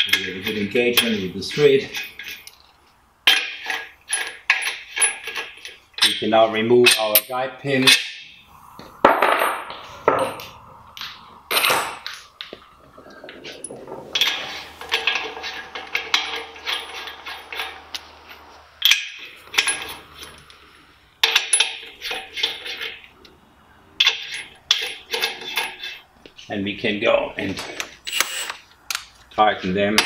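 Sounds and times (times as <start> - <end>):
metal nuts clinking and rattling: 0.0 - 8.2, 11.0 - 20.5, 21.2 - 23.0, 24.0 - 26.0.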